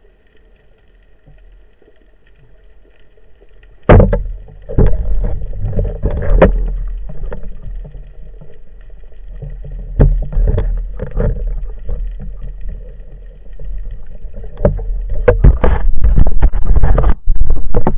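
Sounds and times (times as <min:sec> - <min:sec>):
low sloshing rumble: 0:03.4 - 0:17.9
dull knocks underwater: 0:03.8 - 0:17.9.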